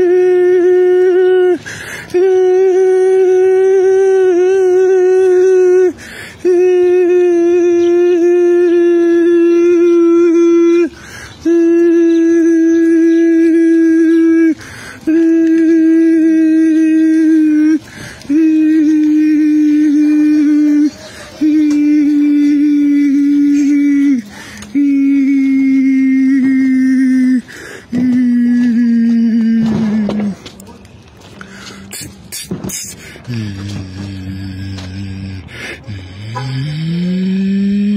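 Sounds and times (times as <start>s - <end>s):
man singing long steady notes: 0.0s - 30.4s, 31.6s - 37.9s
man breathing: 1.6s - 2.2s, 5.9s - 6.5s, 10.9s - 11.5s, 14.6s - 15.1s, 17.8s - 18.4s, 24.2s - 24.8s, 27.4s - 28.0s, 31.4s - 37.9s.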